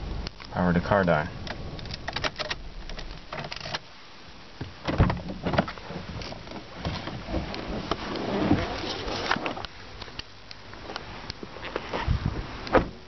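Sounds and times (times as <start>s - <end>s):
handling clicks and knocks: 1.4s - 3.8s
heavy thump: 4.6s - 5.8s, 12.7s - 13.0s
car door unlatching and opening: 4.6s - 9.7s, 12.6s - 13.0s.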